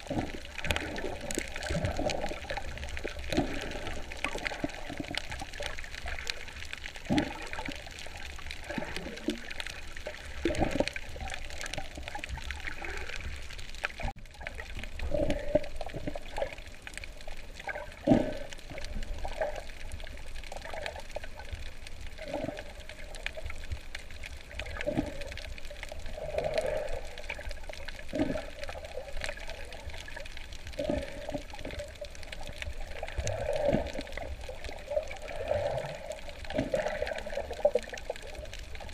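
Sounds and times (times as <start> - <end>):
gurgling bubbling pulses: 0.0 - 16.9, 17.5 - 23.6, 24.4 - 38.9
muffled underwater water rush: 0.0 - 38.9.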